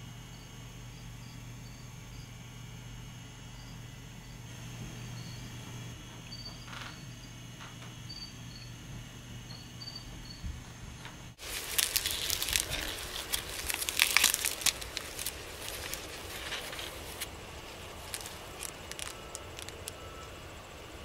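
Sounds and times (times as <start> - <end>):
steady low hum: 0.0 - 21.0
corn husk crackling and rustling: 11.4 - 21.0.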